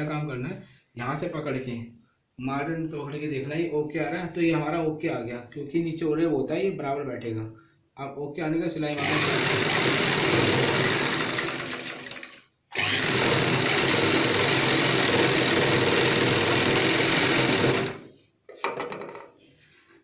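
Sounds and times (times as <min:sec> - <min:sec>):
sewing machine running: 0:08.9 - 0:18.0.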